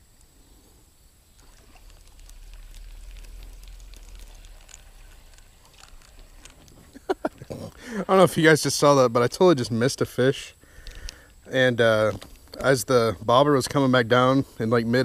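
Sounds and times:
rod and reel handling rumble: 1.3s - 8.2s.

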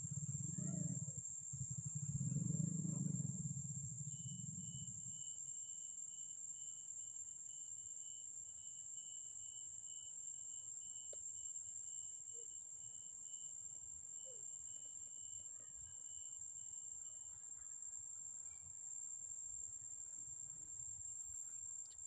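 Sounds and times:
faint pulsing note: 0.0s - 5.5s
forest insects droning: 0.0s - 22.0s.

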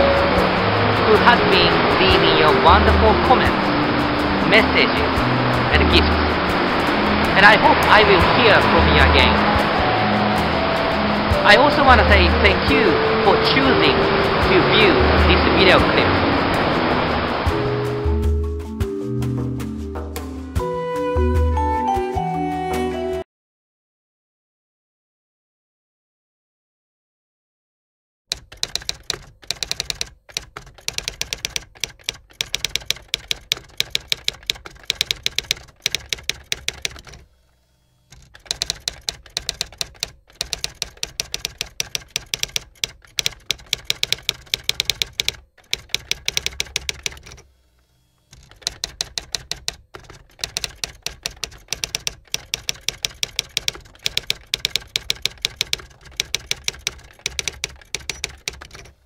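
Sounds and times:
typewriter key strikes: 28.3s - 37.2s, 38.2s - 47.4s, 48.4s - 59.0s.

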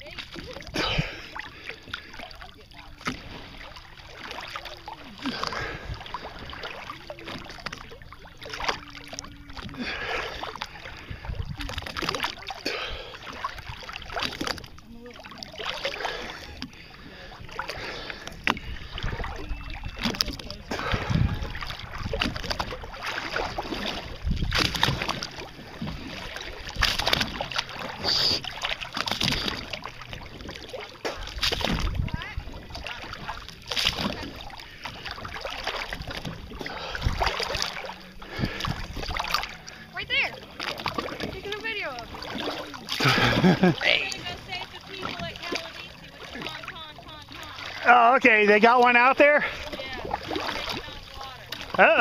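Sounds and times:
sea water sloshing and splashing: 0.0s - 52.0s
small waves slapping: 0.0s - 52.0s.

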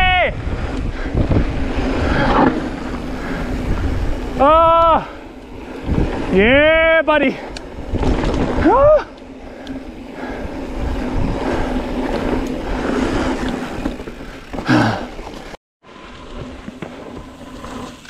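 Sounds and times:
wind on camera: 0.0s - 14.0s
bike tyres rolling on dirt trail: 0.0s - 18.0s.

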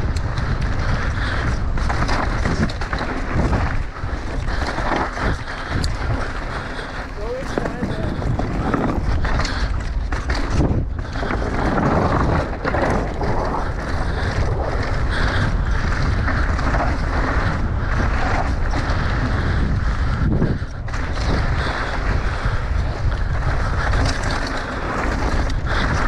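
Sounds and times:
tyres rolling on dirt and wood: 0.0s - 26.0s
wind rushing over microphone: 0.0s - 26.0s.

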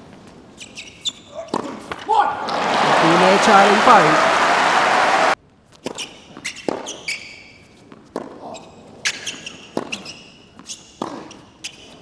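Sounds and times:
sneakers squeaking on court: 8.5s - 12.0s.

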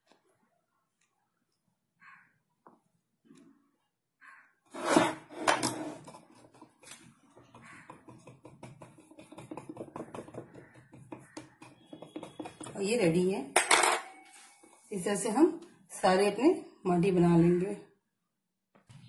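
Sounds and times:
fork tapping on wooden board: 7.4s - 12.8s.

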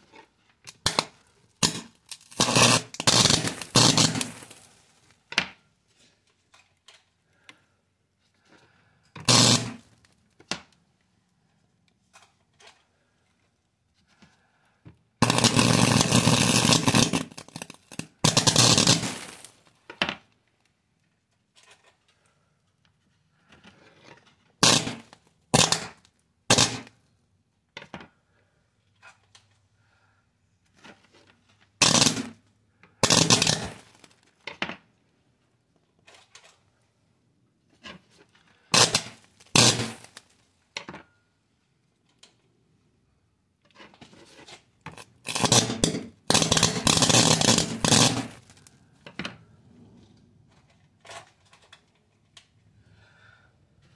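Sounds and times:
electric arc sparking: 1.6s - 4.8s, 9.3s - 9.9s, 15.2s - 19.6s, 24.6s - 26.9s, 31.8s - 32.4s, 33.0s - 34.1s, 38.7s - 40.2s, 45.0s - 48.6s.

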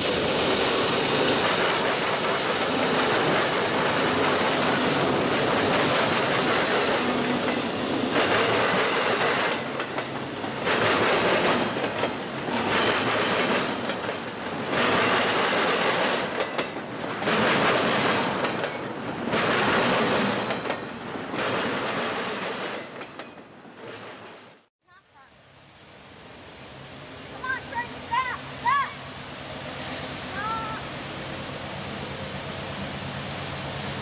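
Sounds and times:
freight train wheels clattering: 0.0s - 24.7s.

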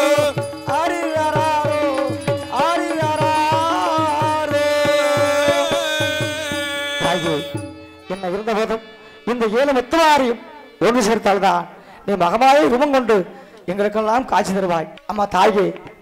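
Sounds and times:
person singing ornamented phrases: 0.0s - 10.8s
person speaking: 6.6s - 15.9s.

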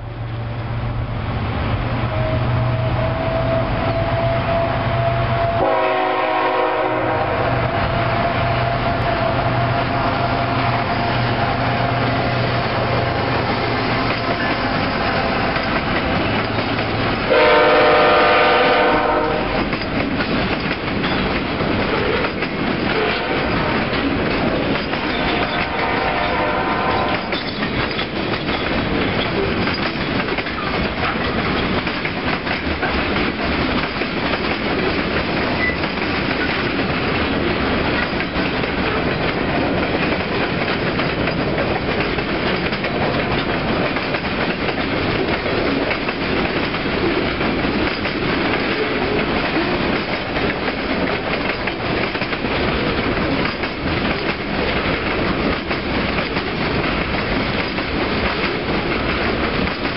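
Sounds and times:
diesel locomotive engines humming: 0.0s - 59.9s
train horn: 2.1s - 12.0s, 17.2s - 19.7s, 22.9s - 23.9s, 25.1s - 27.5s
freight cars rumbling and clacking: 7.5s - 59.9s.

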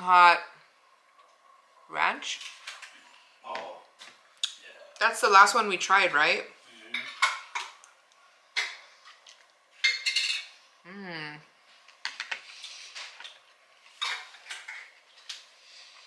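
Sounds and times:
chewing: 9.0s - 9.6s
person humming: 10.9s - 11.4s.

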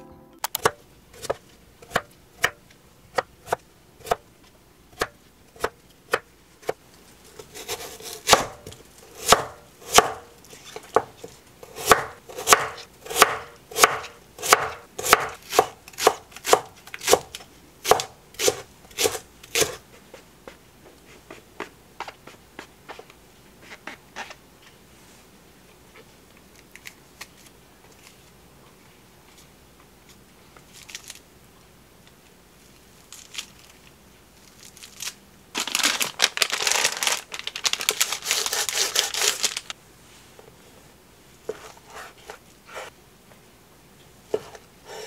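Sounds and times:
knife chopping on wooden board: 9.2s - 10.2s, 11.8s - 19.8s.

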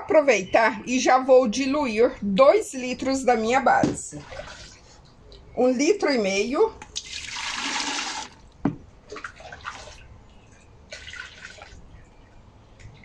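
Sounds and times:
liquid soap pouring: 7.0s - 8.4s, 10.9s - 11.8s
liquid splashes and drips: 9.0s - 11.9s.

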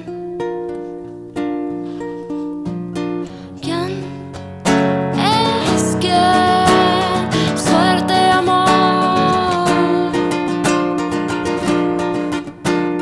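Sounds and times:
strummed acoustic guitar: 0.0s - 13.0s
woman singing long notes: 5.2s - 10.5s.

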